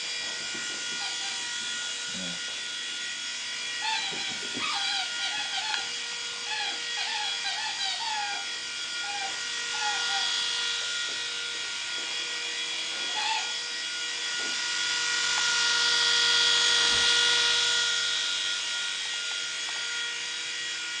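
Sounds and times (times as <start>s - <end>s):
toy helicopter rotors whining: 0.0s - 21.0s.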